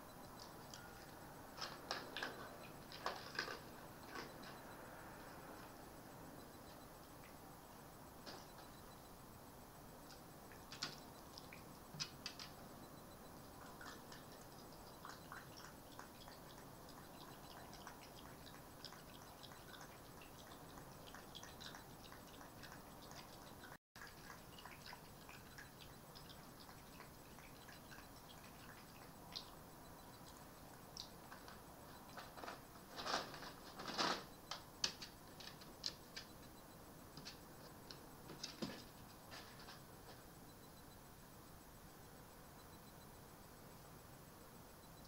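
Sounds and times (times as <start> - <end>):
fox eating from a bowl: 0.4 - 4.6, 13.6 - 29.5.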